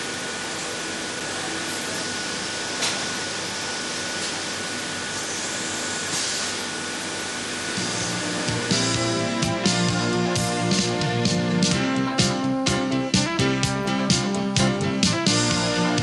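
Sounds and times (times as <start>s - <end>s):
steady hissing noise: 0.0s - 11.7s
low music: 7.8s - 16.0s.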